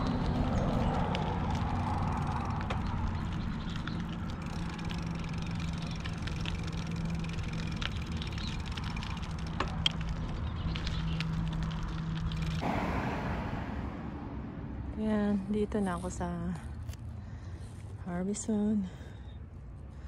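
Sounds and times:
bicycle rolling rumble: 0.0 - 12.6
bike clicks and rattles: 0.0 - 12.6.

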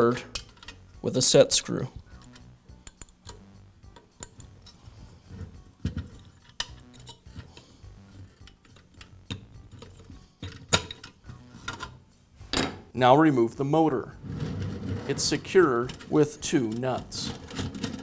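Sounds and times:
metal fan wheel clicking and rattling: 0.3 - 0.8, 15.1 - 18.0.

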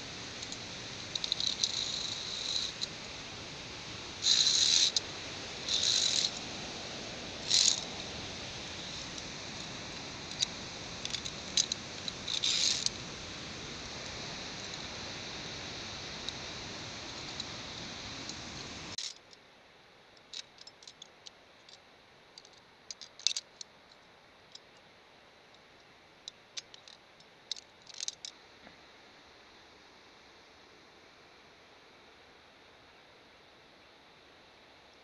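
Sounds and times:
steady rushing noise: 0.0 - 19.0
metal carabiners clicking: 0.4 - 2.9, 5.7 - 6.4, 7.4 - 7.8, 10.3 - 13.0, 22.4 - 23.7, 26.3 - 28.4.

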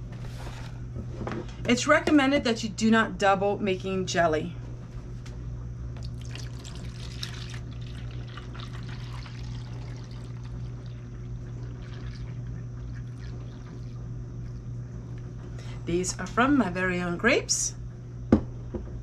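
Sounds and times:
low steady hum: 0.0 - 19.0
juice trickling into container: 6.0 - 14.7.

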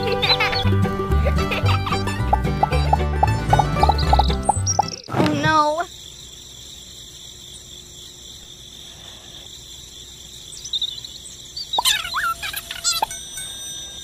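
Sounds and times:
crickets trilling: 1.5 - 14.0
high warbling chirps: 2.1 - 5.1, 9.9 - 14.0.

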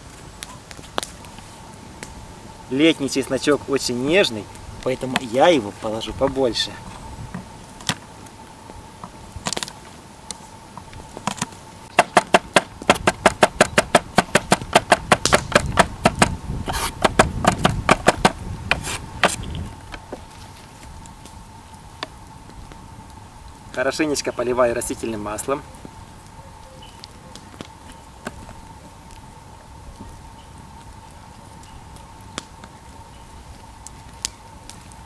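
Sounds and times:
knife chopping on wooden board: 12.0 - 19.4.

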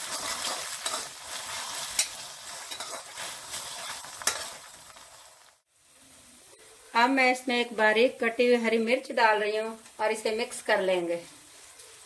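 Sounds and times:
steel spoon scraping pan: 0.0 - 4.6
onions sizzling in hot oil: 0.0 - 12.0.

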